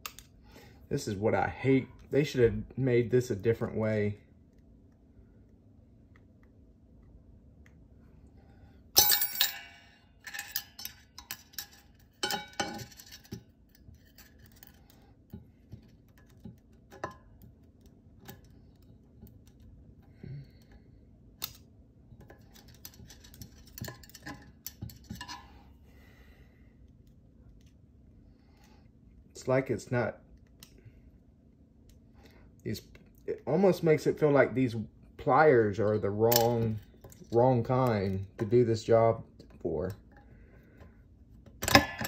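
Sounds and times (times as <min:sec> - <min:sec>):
sharp metal clank: 0:09.0 - 0:10.9
metal parts clinking: 0:09.0 - 0:14.9, 0:22.3 - 0:25.5.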